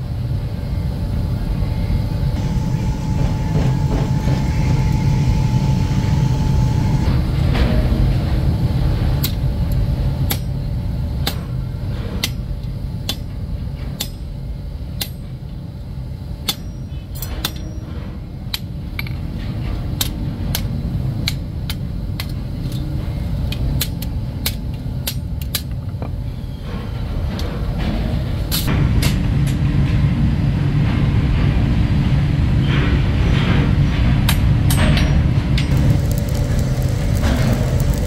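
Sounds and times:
low rumble: 0.0s - 10.2s, 35.4s - 38.0s
hammers striking iron on anvil: 10.3s - 10.6s, 11.2s - 11.6s, 12.2s - 13.4s, 14.0s - 14.3s, 15.0s - 15.3s, 16.4s - 18.7s.

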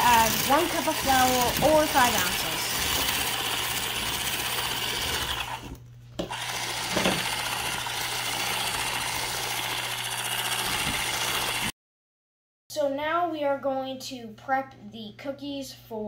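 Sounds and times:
electric whisk running: 0.0s - 11.7s.

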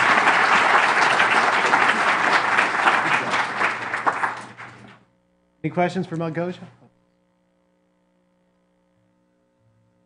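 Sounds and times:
audience applauding: 0.0s - 5.0s.

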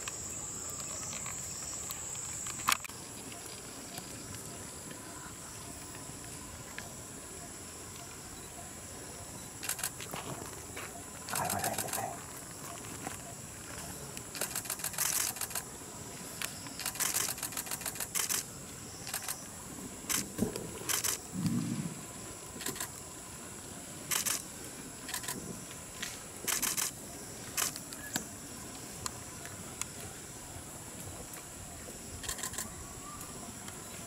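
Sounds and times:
rapid clicking bursts: 14.3s - 15.6s, 16.8s - 18.4s, 24.1s - 24.4s.

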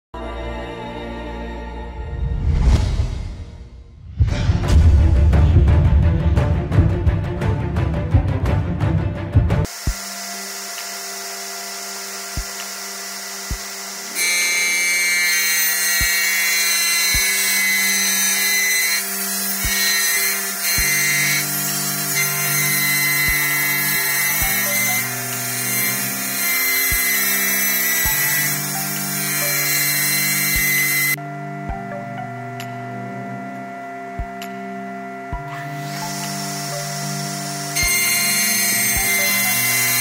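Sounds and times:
panel saw cutting whine: 9.7s - 40.0s
music with steady beat: 34.2s - 34.7s.

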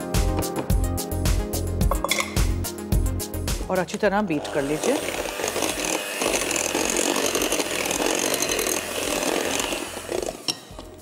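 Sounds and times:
electric hand mixer whirring: 3.8s - 11.0s.

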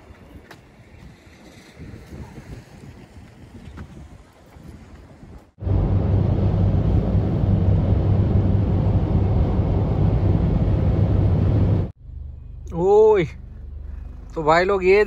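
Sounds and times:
wind noise on microphone: 0.0s - 11.9s
car engine and tyre drone: 5.6s - 15.0s.

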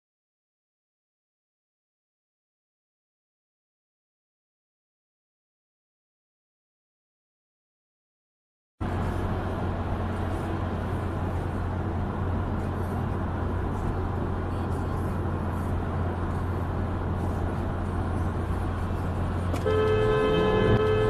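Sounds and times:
car road and engine noise: 8.8s - 21.0s
constant low hum: 8.8s - 21.0s.

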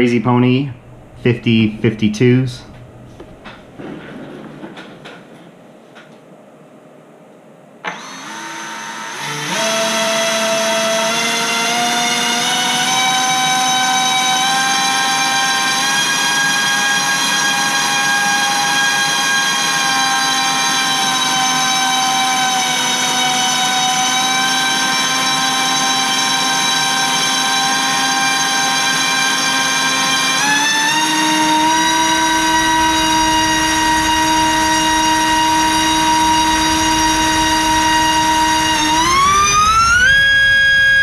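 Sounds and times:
electric motor spinning propeller: 20.9s - 41.0s.

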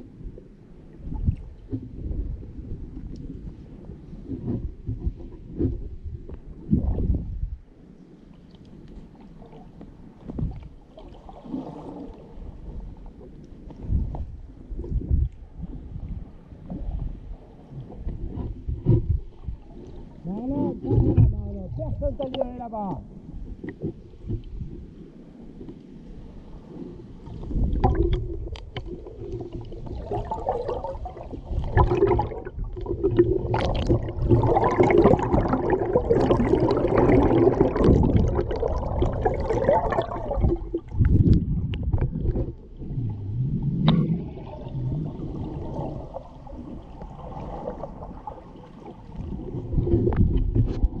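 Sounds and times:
underwater gurgling and bubbling: 0.0s - 7.5s, 26.6s - 51.0s.

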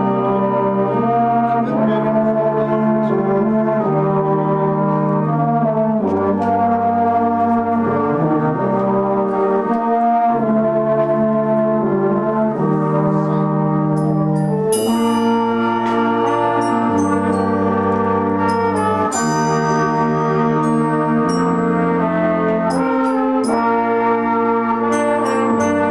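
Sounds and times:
brass band playing slow chords: 0.0s - 25.9s
deep bass line: 0.0s - 25.9s
high ringing notes: 14.0s - 25.9s.

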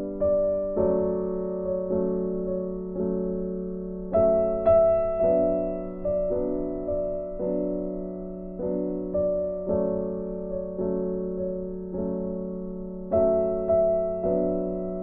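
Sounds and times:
soft piano melody: 0.0s - 15.0s.

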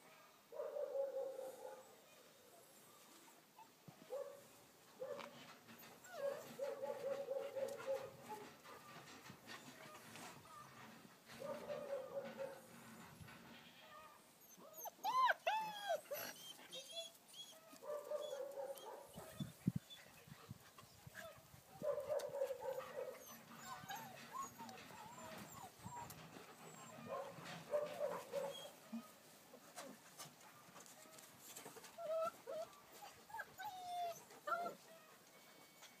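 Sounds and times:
dogs whining and whimpering: 5.6s - 10.9s, 14.0s - 20.2s, 22.6s - 29.2s, 31.2s - 36.0s
dog yelping: 21.9s - 26.1s, 26.7s - 28.8s.

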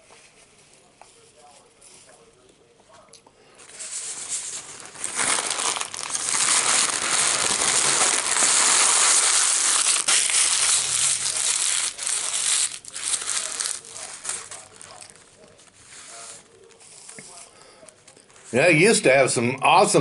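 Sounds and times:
paper bag being crumpled: 3.6s - 16.8s.

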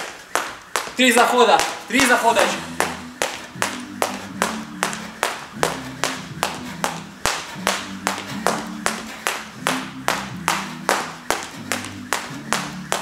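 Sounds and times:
jump rope slapping floor: 0.0s - 13.0s.

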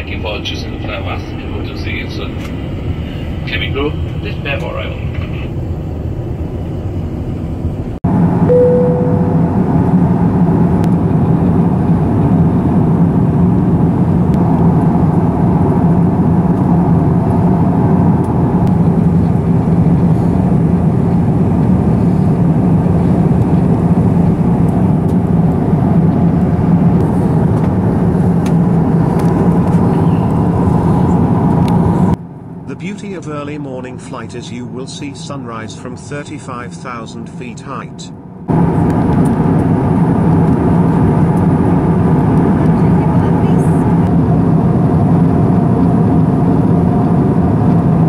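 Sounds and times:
low engine hum: 0.0s - 35.2s, 38.1s - 48.0s
aircraft cabin air rush: 0.0s - 48.0s
brief tone: 8.4s - 9.8s.

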